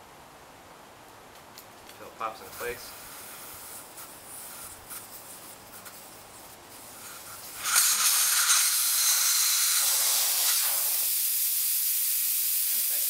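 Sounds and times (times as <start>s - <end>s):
air hissing out of tire valve: 2.5s - 13.0s.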